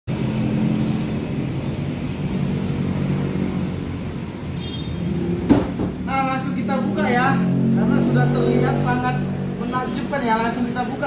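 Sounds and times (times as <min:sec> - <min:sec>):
sharp knock: 0:05.5 - 0:06.0.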